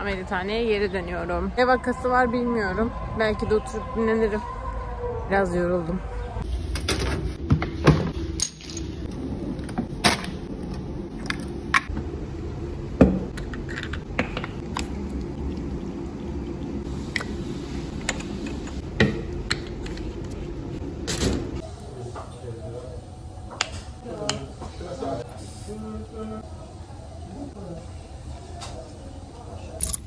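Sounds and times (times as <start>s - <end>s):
steady low hum: 6.5s - 27.5s.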